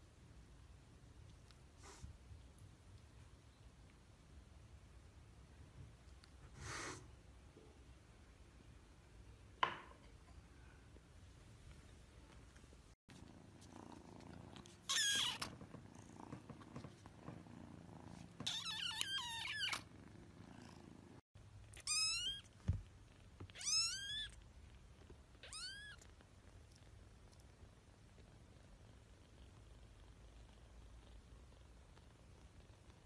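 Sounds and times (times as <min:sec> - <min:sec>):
low steady purr: 0:13.1 - 0:14.8, 0:15.6 - 0:18.4, 0:19.8 - 0:21.2, 0:26.0 - 0:33.0.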